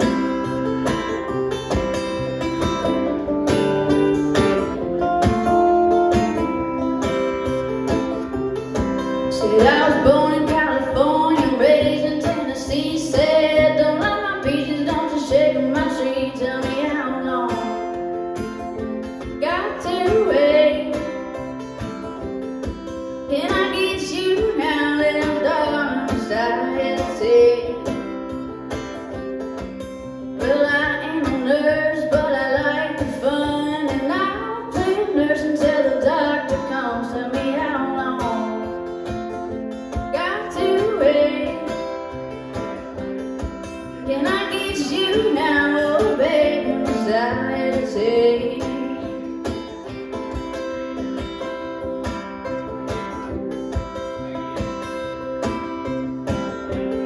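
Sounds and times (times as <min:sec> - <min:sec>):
acoustic guitar: 0:00.0 - 0:57.0
woman singing blues: 0:09.1 - 0:18.2, 0:19.2 - 0:21.3, 0:23.2 - 0:28.3, 0:30.4 - 0:38.9, 0:39.9 - 0:42.1, 0:43.8 - 0:49.7.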